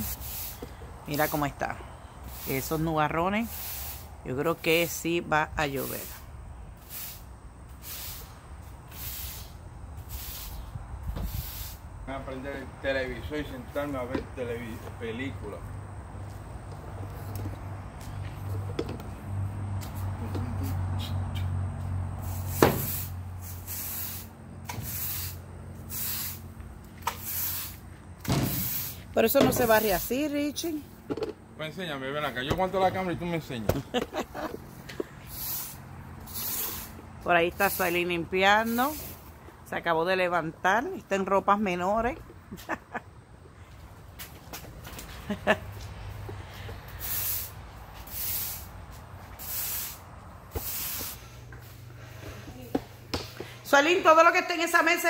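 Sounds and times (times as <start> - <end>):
push broom sweeping concrete: 0.0 - 1.6, 2.2 - 5.0, 5.8 - 11.9, 22.2 - 26.4, 27.0 - 27.8, 28.4 - 30.2, 34.0 - 39.3, 46.6 - 52.5.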